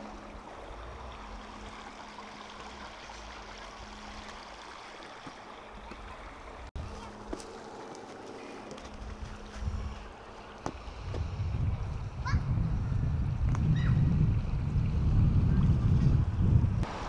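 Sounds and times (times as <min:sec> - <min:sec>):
creek flowing over stones: 0:00.0 - 0:09.3.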